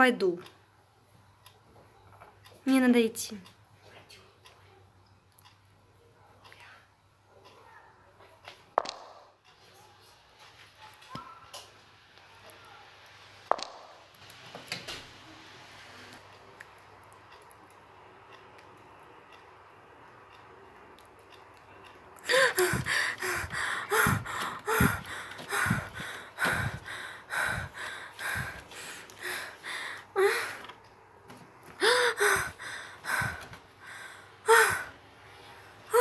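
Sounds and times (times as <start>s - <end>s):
faint steady hum: 0.0s - 36.0s
woman gasping: 22.2s - 30.7s, 31.8s - 35.0s.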